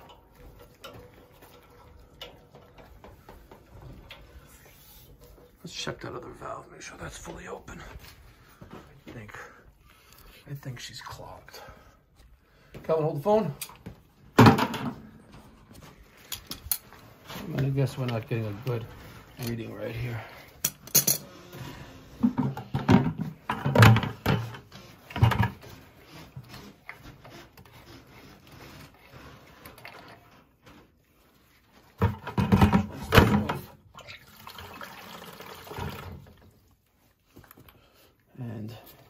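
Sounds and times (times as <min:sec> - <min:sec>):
people talking: 0:05.6 - 0:08.1, 0:09.0 - 0:09.6, 0:10.4 - 0:11.8, 0:17.4 - 0:20.4.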